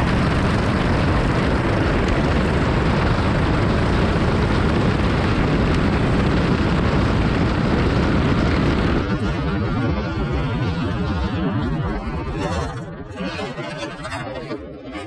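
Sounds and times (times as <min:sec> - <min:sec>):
go-kart engine: 0:00.0 - 0:11.5
wind rush on microphone: 0:00.0 - 0:14.2.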